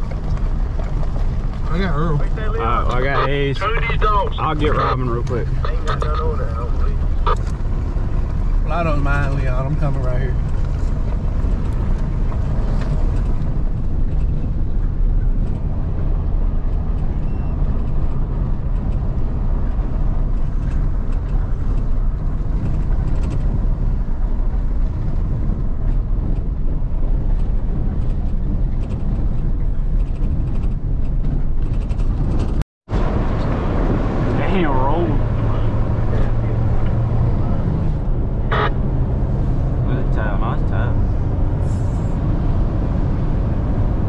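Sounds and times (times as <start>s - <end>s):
vehicle rumbling on dirt road: 0.0s - 44.0s
faint rattles and clicks: 10.4s - 14.6s, 20.3s - 23.6s, 27.2s - 32.6s.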